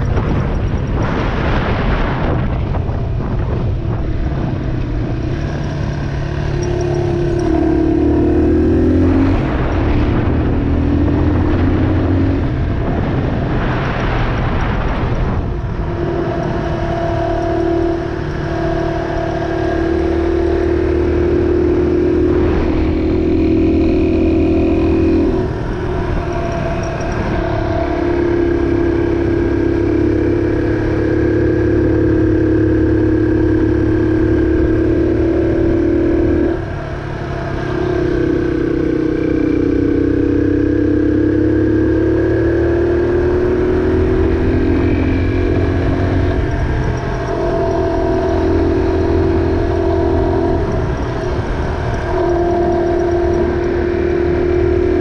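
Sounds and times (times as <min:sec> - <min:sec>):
rushing noise: 0:00.0 - 0:31.8
motorcycle engine running: 0:00.0 - 0:55.0.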